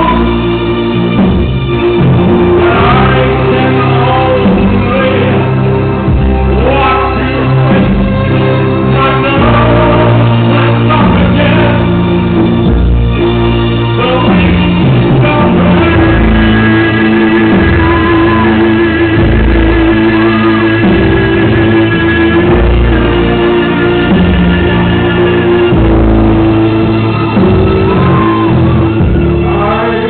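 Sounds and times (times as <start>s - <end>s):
live rock music with singer: 0.0s - 30.0s.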